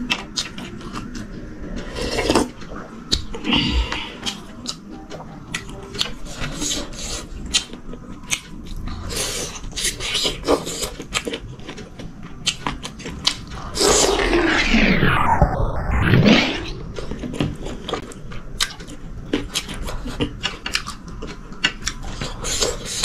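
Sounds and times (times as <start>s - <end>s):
whooshing sound: 13.5s - 17.7s.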